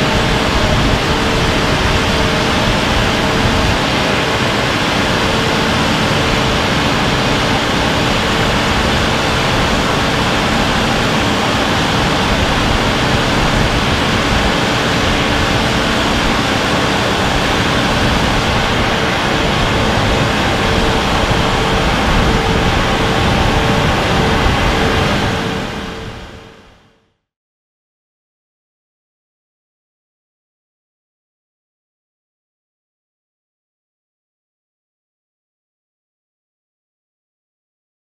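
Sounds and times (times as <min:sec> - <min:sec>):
machinery roaring: 0:00.0 - 0:26.9
machinery hum: 0:00.0 - 0:27.0.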